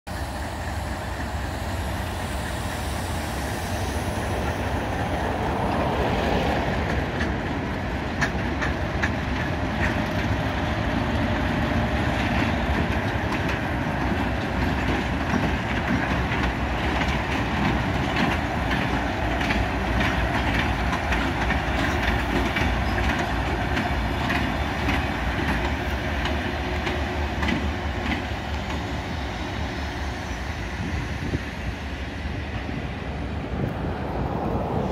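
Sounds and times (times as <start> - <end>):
diesel locomotive engines rumbling: 0.1 - 34.9
wheels clicking over rail joints: 5.5 - 29.1.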